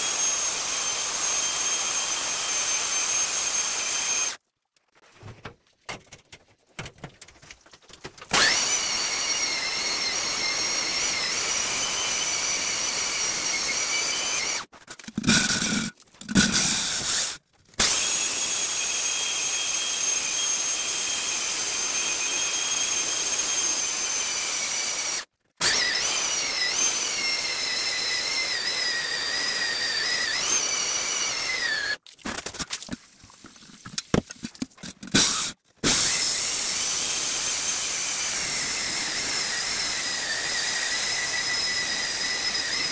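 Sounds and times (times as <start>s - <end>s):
core drill whining into stone: 0.0s - 4.4s, 8.3s - 32.0s, 35.0s - 42.9s
hand tool scraping stone: 14.6s - 18.0s, 32.3s - 36.2s.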